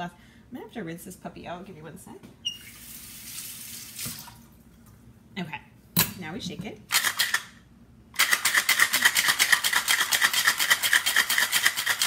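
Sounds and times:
ice rattling in cocktail shaker: 0:08.2 - 0:12.0.

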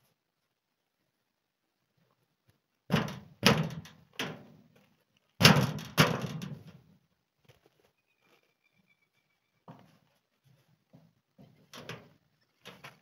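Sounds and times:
boot kicking corrugated iron sheet: 0:02.9 - 0:04.5, 0:05.4 - 0:06.8.

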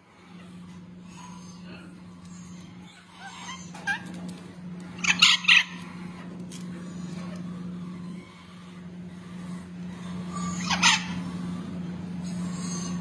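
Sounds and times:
parrot chicks harsh squawks: 0:02.4 - 0:04.1, 0:05.0 - 0:06.2, 0:09.3 - 0:11.5
parrot chicks squeaky calls: 0:05.0 - 0:06.0, 0:10.3 - 0:11.3.

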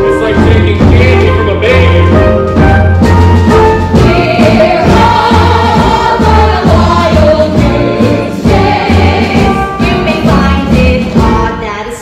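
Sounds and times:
instrumental accompaniment: 0:00.0 - 0:12.0
chorus singing: 0:03.8 - 0:11.6.

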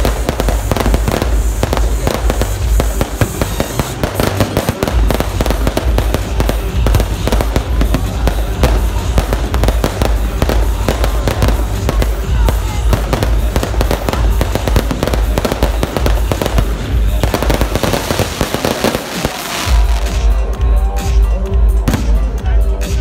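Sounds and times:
fireworks bursting and crackling: 0:00.0 - 0:23.0
music playing: 0:00.0 - 0:23.0.

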